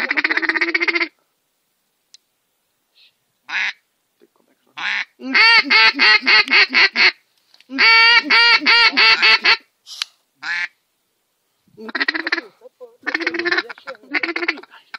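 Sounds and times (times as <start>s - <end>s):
duck quacking: 0.0s - 1.2s, 3.5s - 3.8s, 4.8s - 9.7s, 10.4s - 10.8s, 11.8s - 14.9s.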